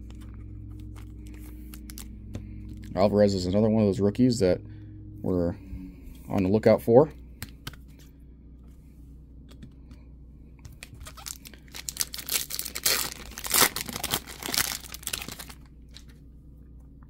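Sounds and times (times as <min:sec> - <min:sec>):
foil pack crinkling tearing: 0:00.0 - 0:03.1, 0:10.7 - 0:16.1.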